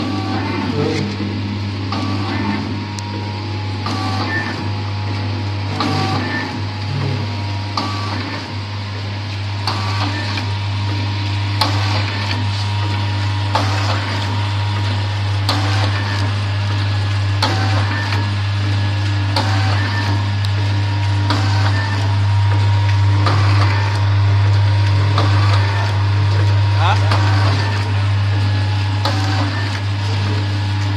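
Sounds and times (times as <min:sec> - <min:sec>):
low motor hum: 0:00.0 - 0:30.9.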